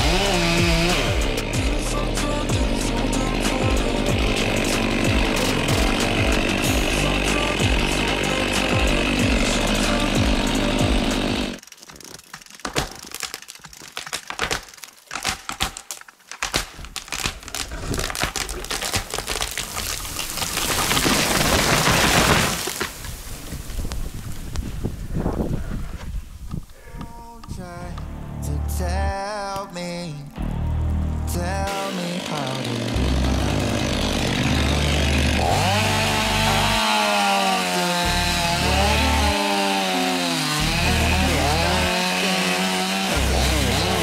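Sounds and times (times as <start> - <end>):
chainsaw running: 0.0 - 11.9, 17.0 - 23.0, 30.4 - 44.0
wood cracking: 0.0 - 28.1, 28.8 - 44.0
tree crashing through branches: 8.4 - 25.0.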